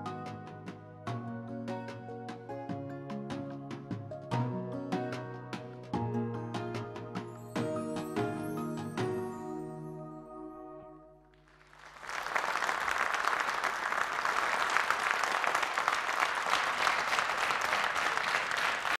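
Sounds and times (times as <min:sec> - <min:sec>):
audience applause: 0:11.4 - 0:19.0.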